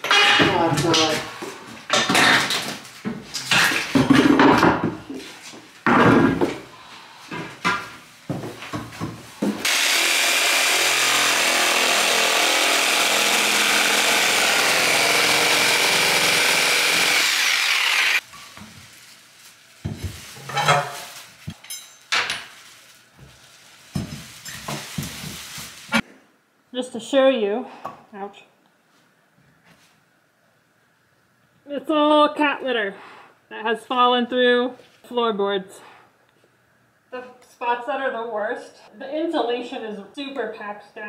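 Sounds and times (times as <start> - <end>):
hand tools prying floorboards: 1.9 - 4.9, 8.8 - 18.2
reciprocating saw cutting wood: 9.6 - 18.2.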